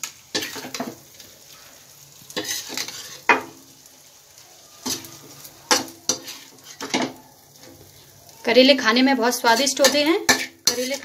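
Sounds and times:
frying sizzle: 0.0s - 11.0s
metal spatula scraping and clanking: 0.3s - 1.0s, 2.3s - 3.6s, 4.8s - 7.9s, 9.3s - 11.0s.

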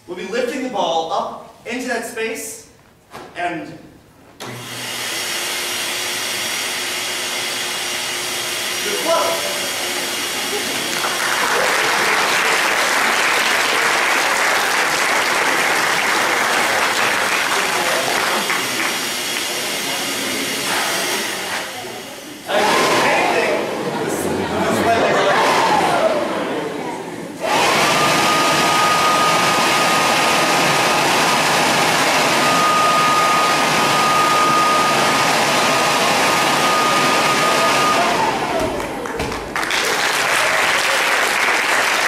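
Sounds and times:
audience applauding: 10.0s - 19.9s, 27.4s - 42.0s
machine rushing noise: 14.6s - 39.0s
high steady whine: 27.4s - 38.9s.

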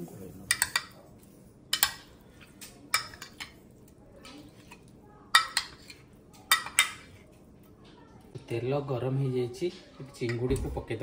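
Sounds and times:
spoon stirring prawns in marinade: 0.4s - 7.6s.

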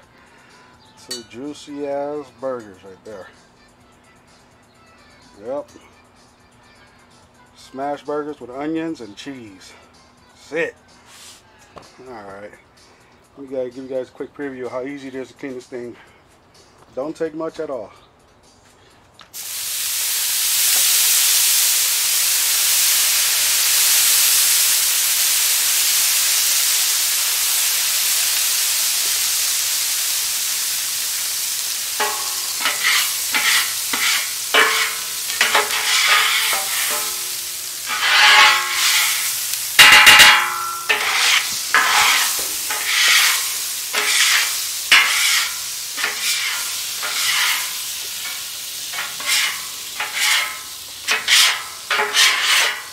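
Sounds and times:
water sizzling on hot griddle: 19.3s - 52.9s
metal scraper scraping griddle: 32.0s - 52.9s.

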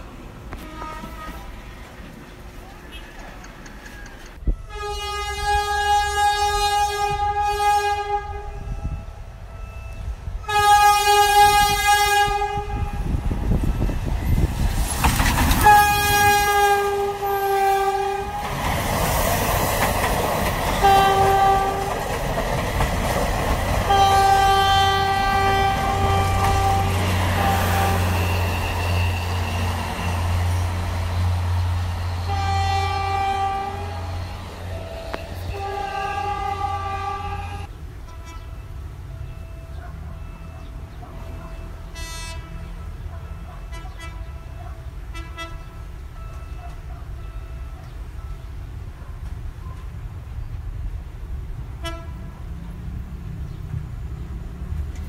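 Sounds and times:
rumble of passing train: 0.0s - 55.0s
diesel train horn blasts: 0.5s - 1.6s, 4.4s - 13.4s, 15.6s - 18.6s, 20.8s - 22.1s, 23.8s - 47.9s, 51.8s - 52.4s.

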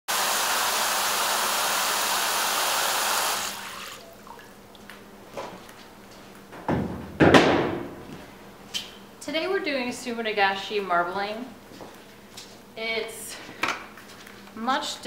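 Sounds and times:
hose water running into tray: 0.1s - 4.2s
loud thump: 6.7s - 8.0s.

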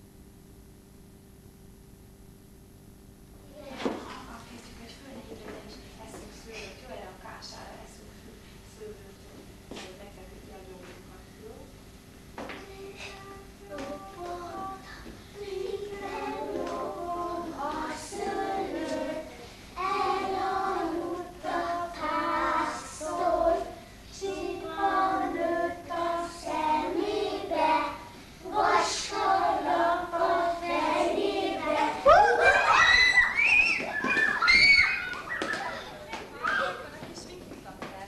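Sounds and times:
children singing together: 13.0s - 33.2s
children shrieking: 32.0s - 36.8s.

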